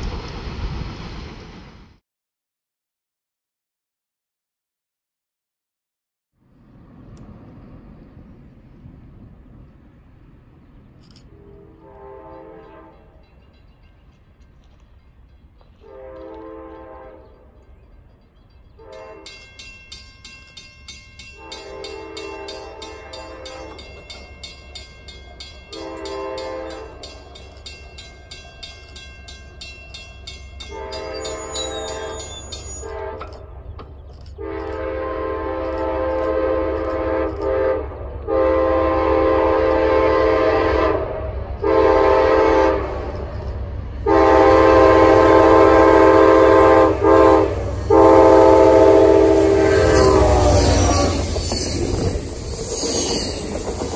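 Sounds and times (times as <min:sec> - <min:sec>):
train rumble: 0:00.0 - 0:02.0, 0:06.4 - 0:53.9
locomotive air horn blasts: 0:11.3 - 0:13.1, 0:15.8 - 0:17.4, 0:18.8 - 0:19.4, 0:21.4 - 0:23.9, 0:25.7 - 0:27.0, 0:30.6 - 0:33.5, 0:34.4 - 0:43.2, 0:44.0 - 0:52.0.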